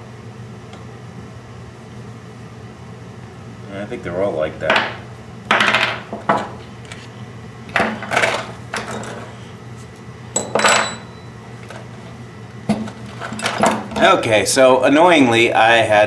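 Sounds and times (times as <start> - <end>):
high metallic ring: 10.3 - 11.4.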